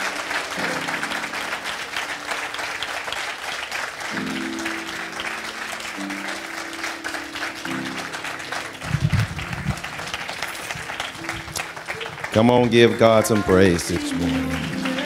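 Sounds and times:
congregation clapping: 0.0s - 15.0s.

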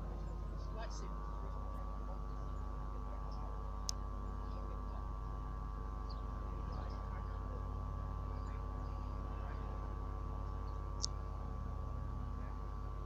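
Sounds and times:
steady hum: 0.0s - 13.0s
faint bird chirps: 6.0s - 7.5s.

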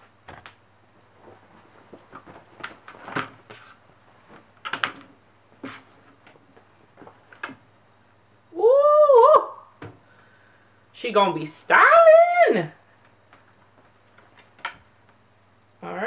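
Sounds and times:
fabric rustling: 0.9s - 7.3s.

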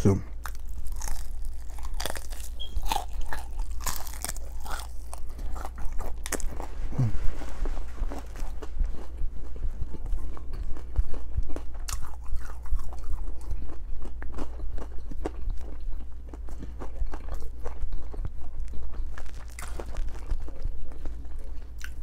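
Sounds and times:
low hum: 0.0s - 22.0s
chewing crunchy food: 0.2s - 22.0s
wet mouth sounds: 5.6s - 7.4s.

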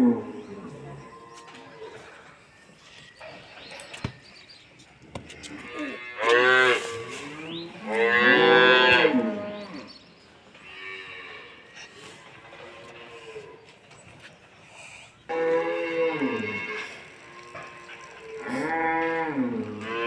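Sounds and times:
calf mooing loudly: 5.6s - 9.9s, 15.3s - 20.0s
faint cattle lowing: 10.6s - 20.0s.

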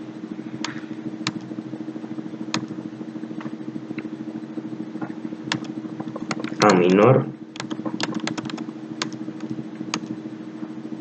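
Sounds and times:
low droning hum: 0.0s - 11.0s
keyboard keystrokes: 1.3s - 1.5s, 5.5s - 7.0s, 7.6s - 10.1s.

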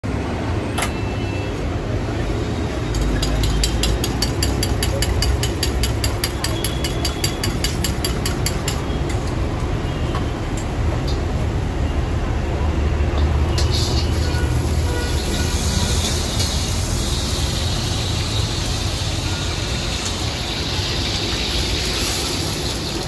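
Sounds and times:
gas burner rushing: 13.3s - 23.0s.

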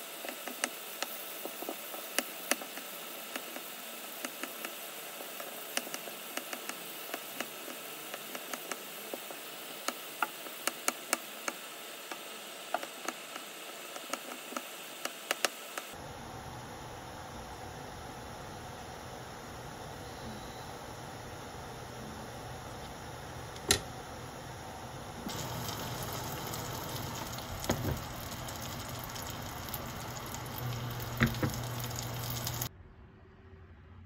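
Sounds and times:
broth simmering in a pot: 0.0s - 16.1s, 24.6s - 32.7s
steady hiss: 0.0s - 16.2s, 24.6s - 32.7s.

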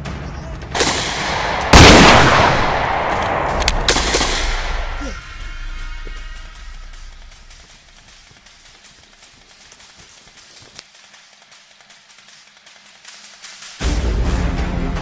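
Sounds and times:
gunshots: 0.7s - 5.1s.

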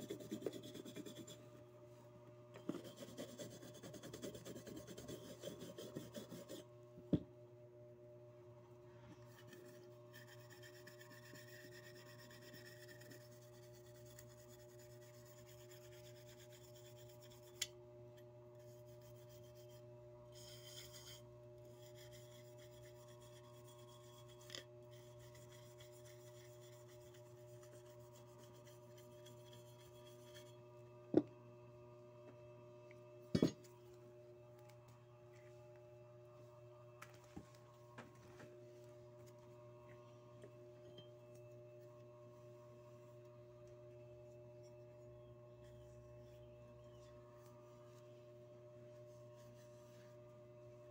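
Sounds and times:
toothbrush scrubbing metal: 0.0s - 1.4s, 2.7s - 6.7s, 9.3s - 17.7s, 18.6s - 30.6s
steady low hum: 0.0s - 50.9s.

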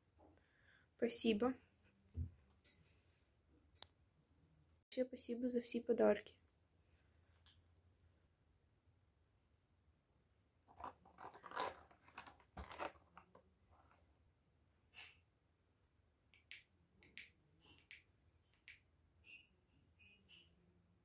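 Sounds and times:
paper and cardboard crinkling: 10.7s - 14.1s.

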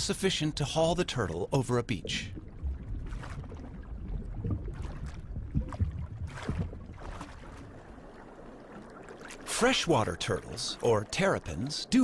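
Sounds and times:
water sloshing and splashing: 0.0s - 12.0s
low rumble: 2.2s - 8.2s.

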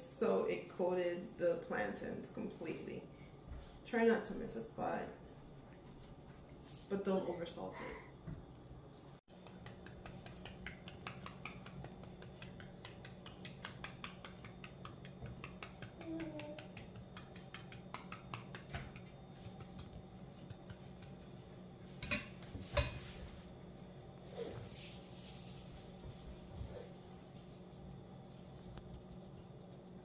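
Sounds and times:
salt shaker ticking: 9.3s - 21.4s.

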